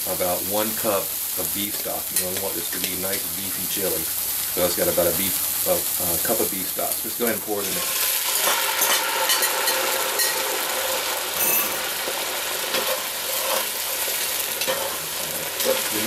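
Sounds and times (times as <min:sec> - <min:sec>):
food sizzling in a pot: 0:00.0 - 0:16.0
metal spatula scraping pot: 0:07.7 - 0:10.5
liquid pouring into pot: 0:07.8 - 0:13.3.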